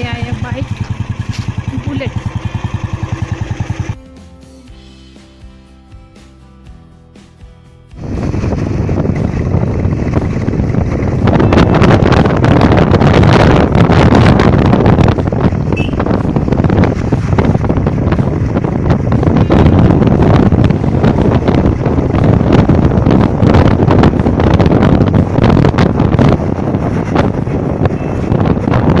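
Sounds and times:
motorcycle engine running: 0.0 - 4.0, 8.0 - 29.0
wind buffeting microphone: 8.0 - 29.0.

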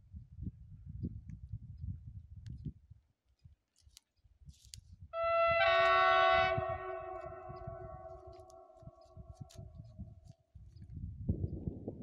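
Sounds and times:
wind rumble on microphone: 0.0 - 3.6, 4.2 - 12.0
railbus horn two-note chord: 5.2 - 8.7.

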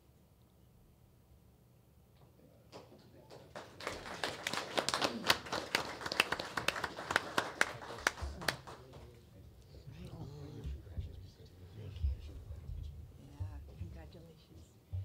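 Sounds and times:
small group clapping: 2.7 - 9.3.

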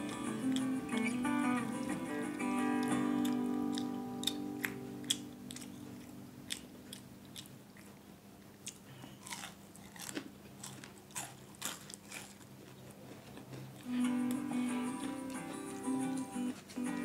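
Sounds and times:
person chewing crunchy food: 2.8 - 13.9.

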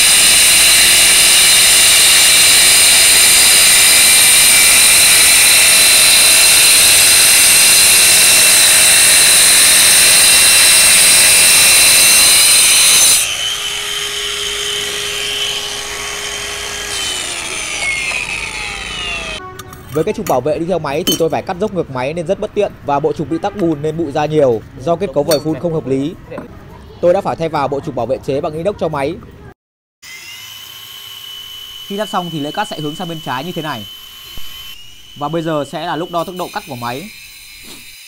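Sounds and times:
motor running free: 0.0 - 19.4
wall chaser cutting brick: 0.0 - 19.4, 30.0 - 38.0.

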